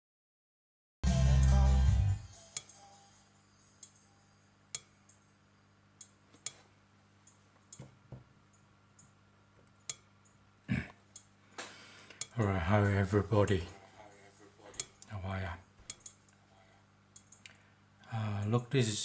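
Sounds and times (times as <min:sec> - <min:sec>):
smartphone music: 0:01.0 - 0:04.6
faint steady hum: 0:01.1 - 0:19.0.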